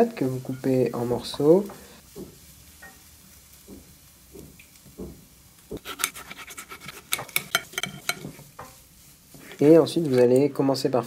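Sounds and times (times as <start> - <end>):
knife cutting tomatoes: 5.7 - 8.4
knife tapping ceramic plate: 6.9 - 8.7.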